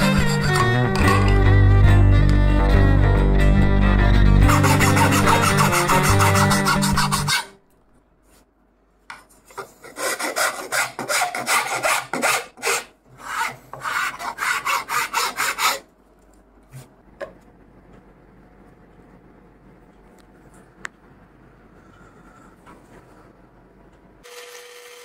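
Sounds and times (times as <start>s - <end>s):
hand file rasping wood: 0.0s - 0.6s, 4.4s - 7.5s, 9.5s - 15.8s.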